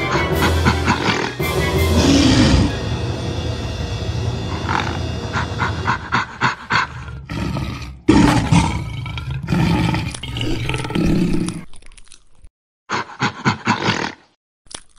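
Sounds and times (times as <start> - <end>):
big cat growling and roaring: 0.0 - 2.8, 4.5 - 11.6.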